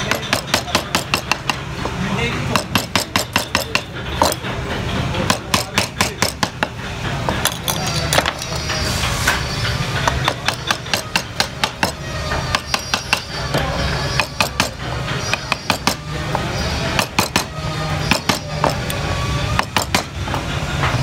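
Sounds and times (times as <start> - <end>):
mallet tapping a gouge: 0.0 - 4.4, 5.2 - 6.8, 10.0 - 13.4, 14.2 - 19.0, 19.6 - 20.4.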